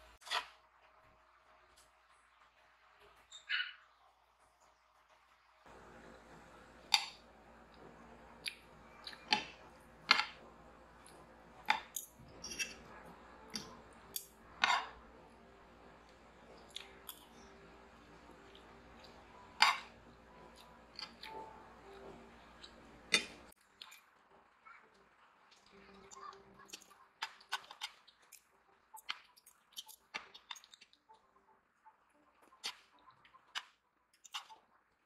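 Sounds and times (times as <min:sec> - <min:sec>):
faint room hum: 0:00.0 - 0:35.0
cutlery clinking on ceramic plate: 0:14.6 - 0:15.0, 0:19.6 - 0:19.9.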